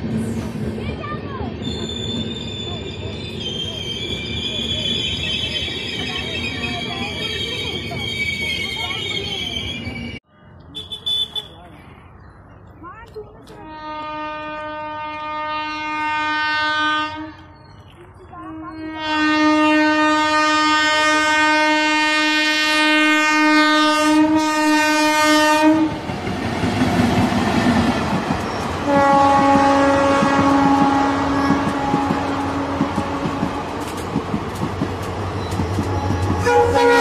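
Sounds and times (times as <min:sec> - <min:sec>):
train wheels rumbling on rails: 0:00.0 - 0:10.2, 0:19.9 - 0:37.0
locomotive horn blasts: 0:13.6 - 0:17.6, 0:18.8 - 0:25.9, 0:28.8 - 0:33.7, 0:36.4 - 0:37.0.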